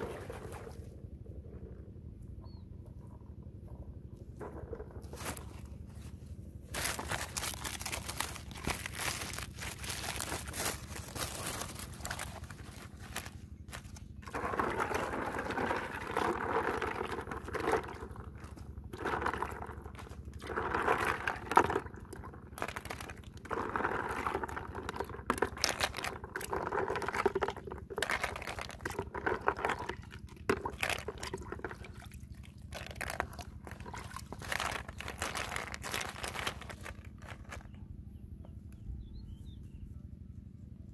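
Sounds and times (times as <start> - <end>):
leaves rustling: 5.1 - 14.3, 32.9 - 37.6
water splashing onto leaves: 6.7 - 16.1.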